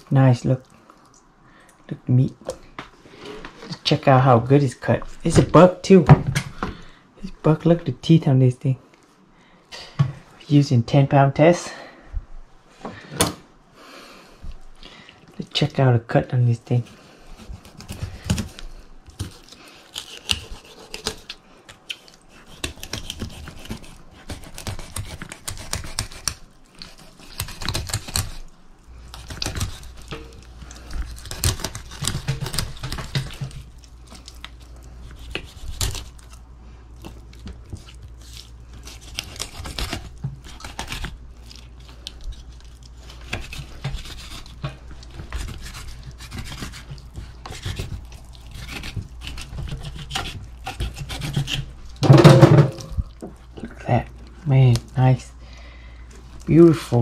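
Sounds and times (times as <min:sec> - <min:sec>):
low steady hum: 0:00.0 - 0:57.0
knife scraping through fish: 0:16.9 - 0:36.4, 0:37.0 - 0:52.9.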